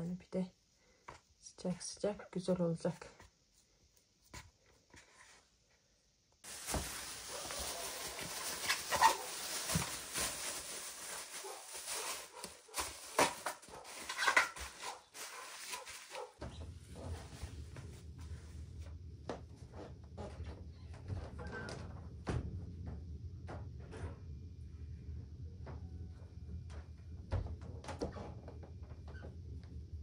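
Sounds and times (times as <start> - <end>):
cling film rustling and crinkling: 6.4 - 16.4.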